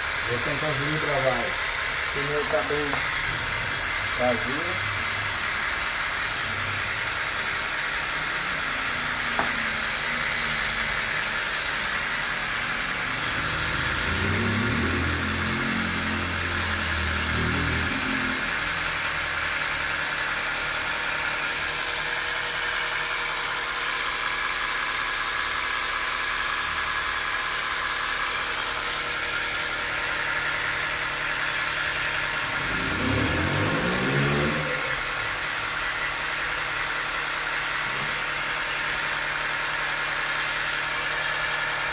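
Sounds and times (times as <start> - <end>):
mini air compressor running: 0.0 - 41.9.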